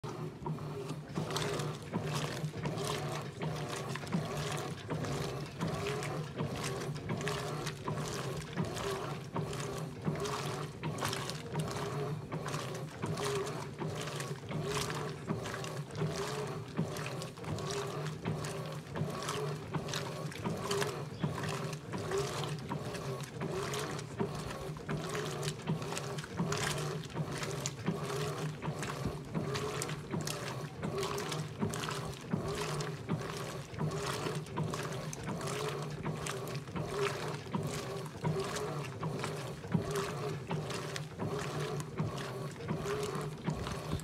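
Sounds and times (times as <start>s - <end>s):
motor hum: 0.0s - 44.0s
water sloshing in washing machine: 0.0s - 44.0s.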